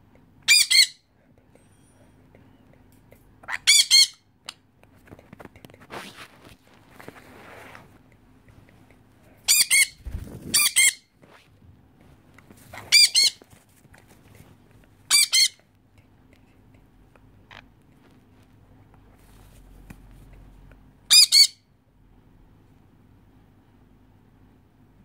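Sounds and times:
parrots screeching: 0.5 - 1.0, 3.4 - 4.2, 9.5 - 11.0, 12.7 - 13.4, 15.1 - 15.6, 21.1 - 21.6.

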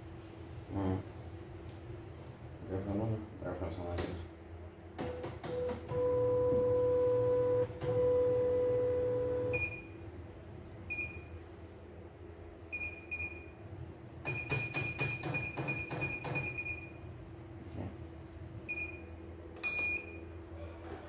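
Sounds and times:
machine long steady tones: 5.1 - 10.0.

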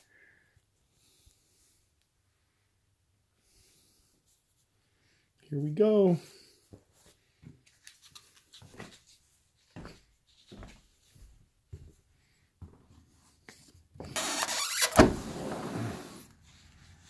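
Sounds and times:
glass door opening with rush: 14.2 - 16.3.

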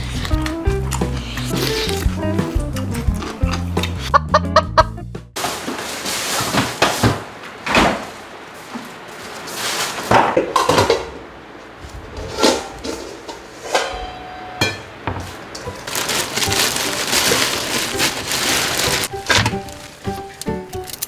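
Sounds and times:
dishes clattering: 10.1 - 11.2
metal bowl ringing: 13.7 - 14.9
plastic bag crinkling: 15.6 - 21.0.

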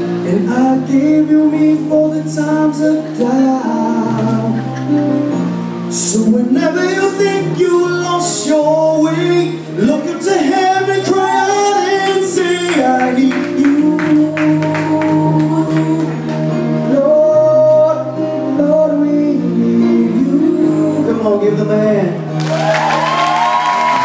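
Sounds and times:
man singing long notes: 0.0 - 4.9, 5.9 - 22.3.

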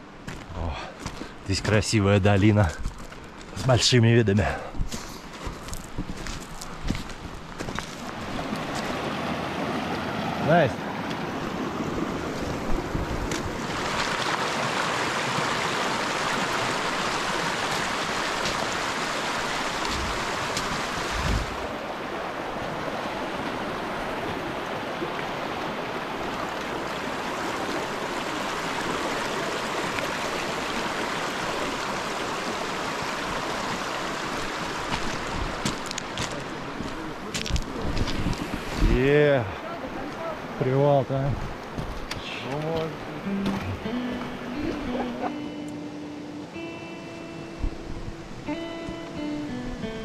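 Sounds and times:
creek water rushing: 0.0 - 50.0.

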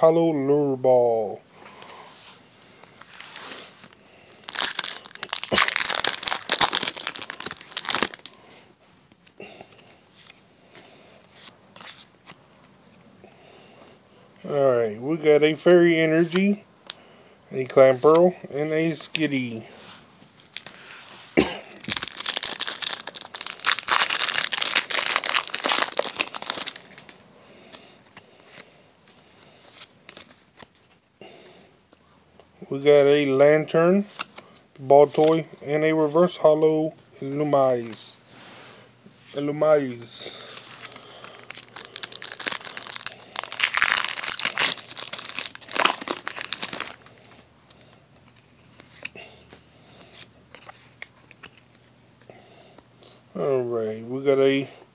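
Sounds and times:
cards rustling: 2.7 - 8.5, 9.7 - 13.0, 20.2 - 31.0, 39.4 - 51.9
foil wrapper crinkling and tearing: 2.9 - 8.4, 20.4 - 27.2, 40.3 - 47.4.

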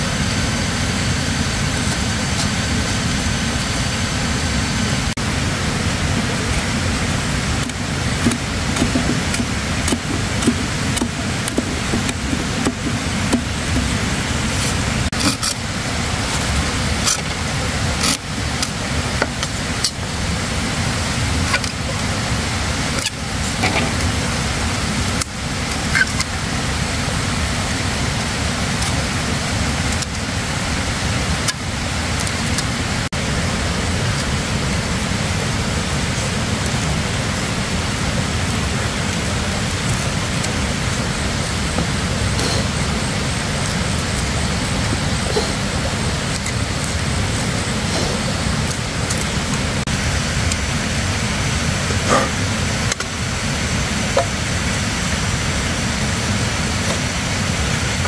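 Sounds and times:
machete and saw cutting bamboo: 7.6 - 15.7, 16.3 - 20.0.

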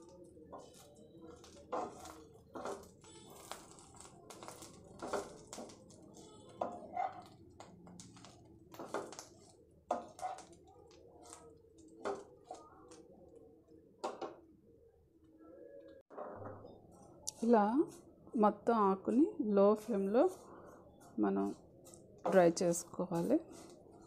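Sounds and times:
wooden spatula scraping a pan: 0.4 - 12.6, 20.2 - 24.0.

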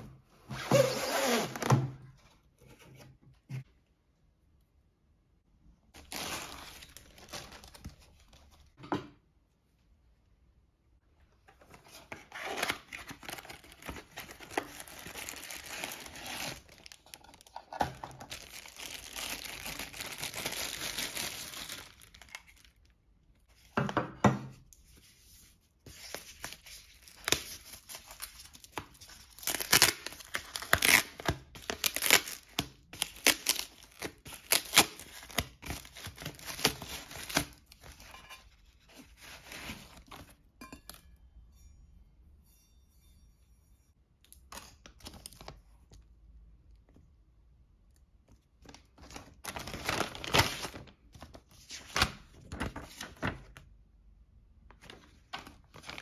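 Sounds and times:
plastic bag crinkling and tearing: 6.0 - 8.4, 12.4 - 22.9, 27.0 - 38.1, 48.6 - 51.3.

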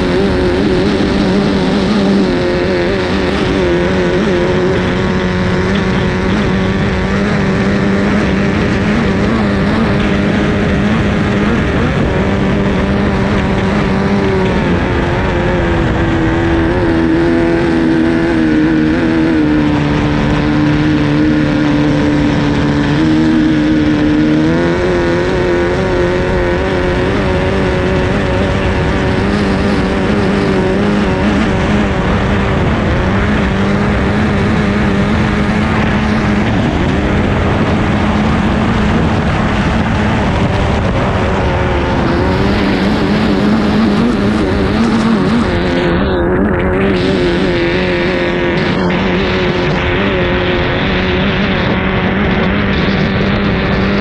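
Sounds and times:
hull noise: 0.0 - 54.0
racing outboard engine running: 0.0 - 54.0
wind: 0.0 - 54.0.

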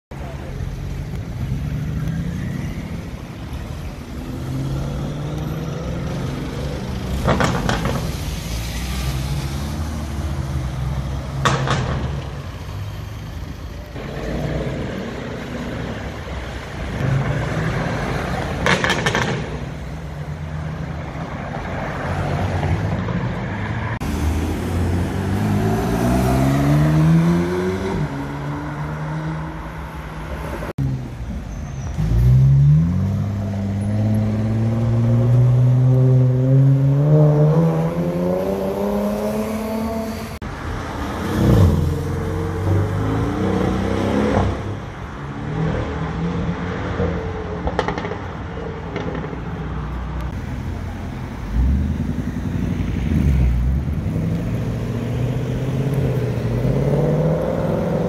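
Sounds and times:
sports car engines accelerating: 23.6 - 31.2, 31.8 - 40.4, 50.2 - 58.0
engine revving: 24.0 - 29.5, 51.5 - 58.0.

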